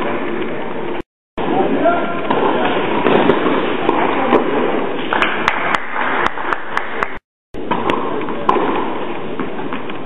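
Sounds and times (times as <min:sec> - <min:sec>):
tennis balls struck by rackets: 0:07.6 - 0:10.0.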